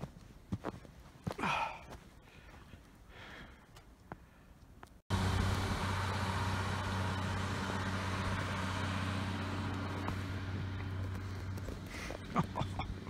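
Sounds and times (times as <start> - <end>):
vehicle engine humming: 5.1 - 13.0.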